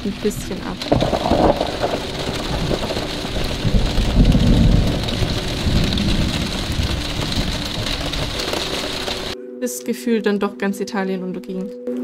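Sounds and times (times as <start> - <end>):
low thunder rumble: 0.0 - 9.4
steady rain falling: 0.0 - 9.4.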